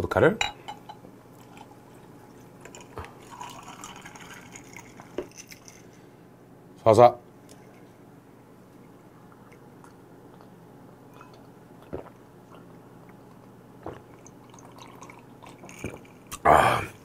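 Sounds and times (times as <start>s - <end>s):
low steady hum: 0.0s - 17.0s
soft swallowing gulps: 9.2s - 17.0s.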